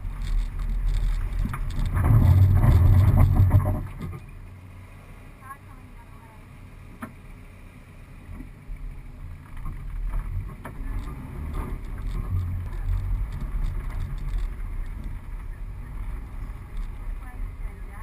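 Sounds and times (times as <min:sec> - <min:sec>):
vehicle knocks and rattles: 0:00.0 - 0:04.4, 0:09.2 - 0:17.2
engine and tyre rumble: 0:00.0 - 0:18.0.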